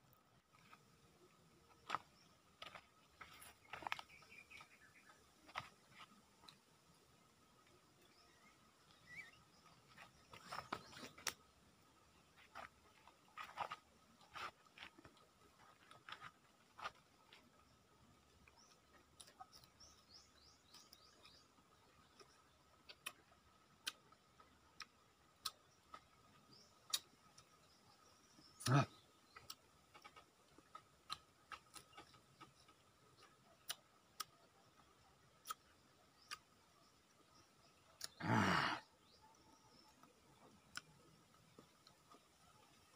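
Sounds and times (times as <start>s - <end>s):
dry leaves and pods crackling: 1.7s - 6.7s, 7.5s - 27.5s
tamarind pods cracking: 21.9s - 27.6s, 28.7s - 36.8s.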